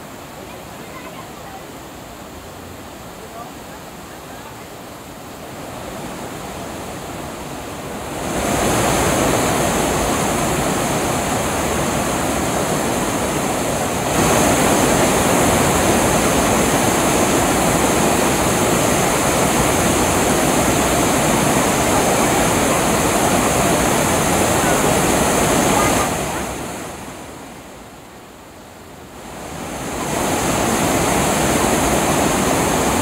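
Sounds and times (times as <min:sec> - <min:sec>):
river rapids rushing: 0:00.0 - 0:33.0.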